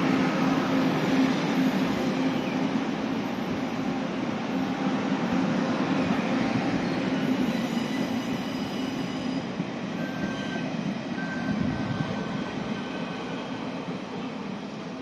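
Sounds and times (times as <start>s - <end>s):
train wheels rumbling on rail: 0.0s - 15.0s
high wheel squeals: 6.7s - 13.3s.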